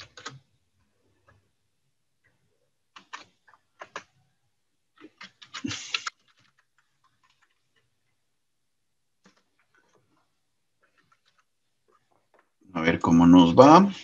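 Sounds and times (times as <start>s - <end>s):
computer keyboard typing: 0.0s - 1.5s, 2.2s - 8.2s, 9.2s - 12.5s.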